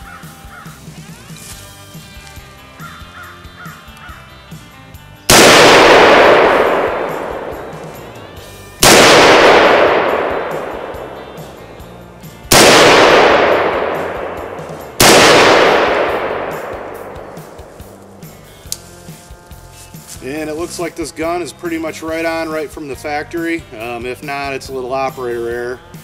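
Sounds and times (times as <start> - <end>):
rifle shots with echo: 5.3 - 18.3.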